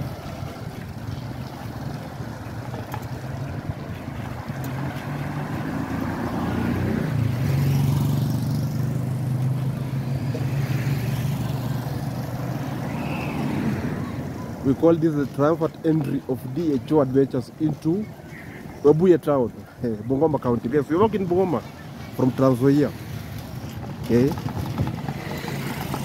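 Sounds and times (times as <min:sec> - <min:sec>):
motorcycle engine running: 0:00.0 - 0:14.6, 0:23.5 - 0:26.0
traffic on wet road: 0:00.0 - 0:26.0
hiss of wind and tyres: 0:25.0 - 0:26.0.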